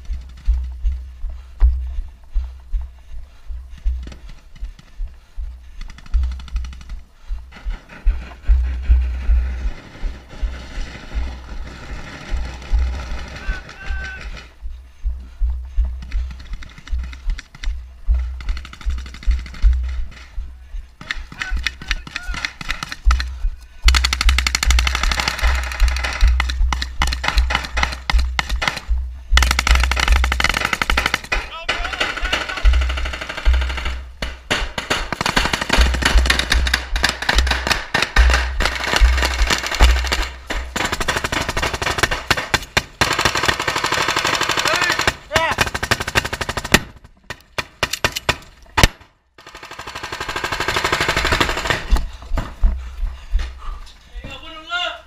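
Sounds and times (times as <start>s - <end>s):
low rumble: 0.0s - 21.9s, 22.9s - 31.2s
automatic gunfire: 9.6s - 14.4s, 23.9s - 52.0s.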